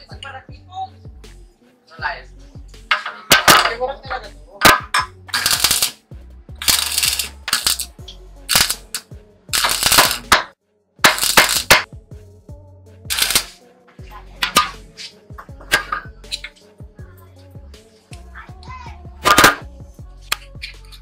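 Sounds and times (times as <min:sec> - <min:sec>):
background music: 0:00.0 - 0:21.0
arc welder crackling: 0:05.3 - 0:06.0, 0:06.6 - 0:11.9, 0:13.1 - 0:13.5.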